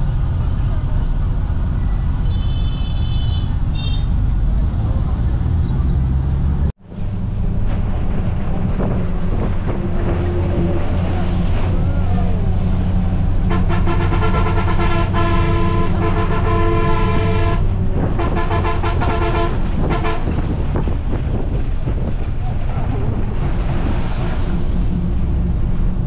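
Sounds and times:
bus engine and road rumble: 0.0s - 26.0s
vehicle horn honking: 2.2s - 4.2s, 13.4s - 20.4s.

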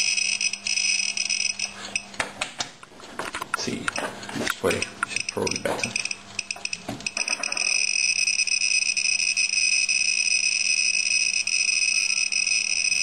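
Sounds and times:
high-pitched alarm tone: 0.0s - 1.7s, 4.7s - 13.0s
geiger counter clicks: 3.3s - 13.0s.

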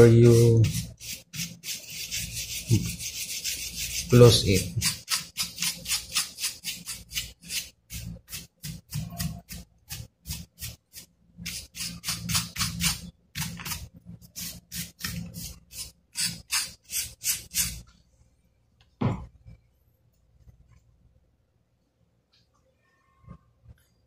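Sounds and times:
brush scrubbing inside laptop: 0.0s - 17.8s
knock: 19.0s - 19.3s.

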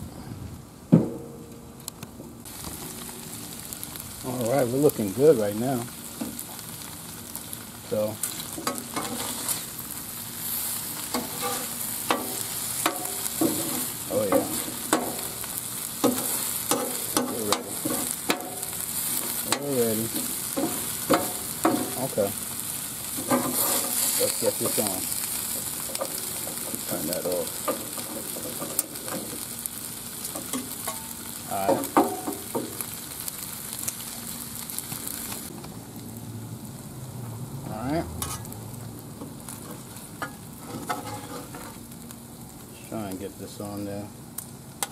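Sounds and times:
food sizzling on griddle: 0.6s - 44.9s
metal spatulas scraping griddle: 8.3s - 9.7s, 11.0s - 15.3s, 23.2s - 24.8s, 38.2s - 38.5s, 39.7s - 41.8s.

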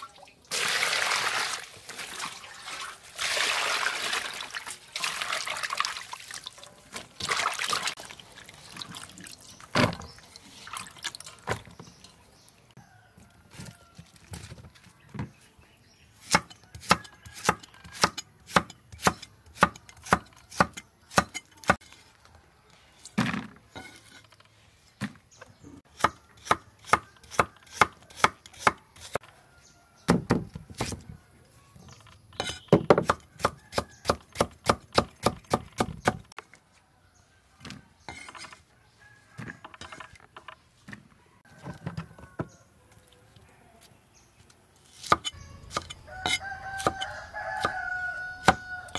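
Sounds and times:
cleaver chopping on wooden block: 16.3s - 21.8s, 32.4s - 36.2s.

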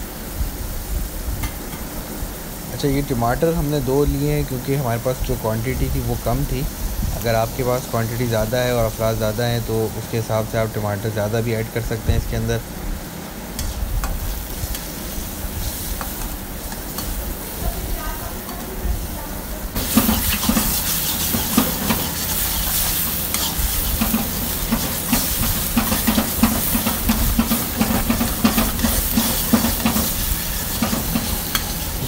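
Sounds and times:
food sizzling in oil: 0.0s - 32.0s
metal spatula scraping wok: 19.8s - 32.0s.

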